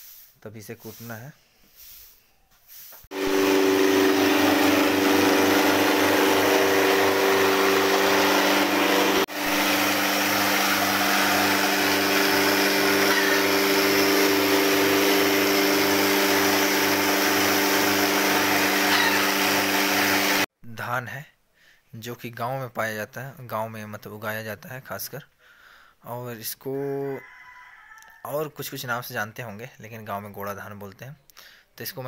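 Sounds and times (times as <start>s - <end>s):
rice huller motor hum: 3.1s - 20.5s.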